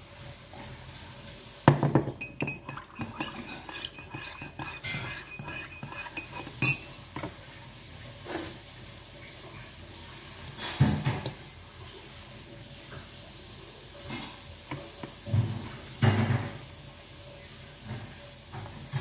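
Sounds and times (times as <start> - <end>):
fork clinking on a plate: 2.2 - 7.3.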